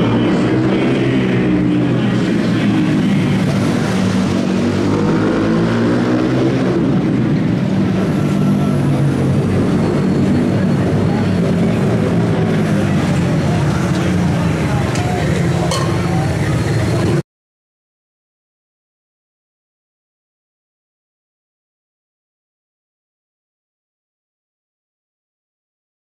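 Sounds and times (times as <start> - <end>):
small atv engines revving: 0.0 - 17.2.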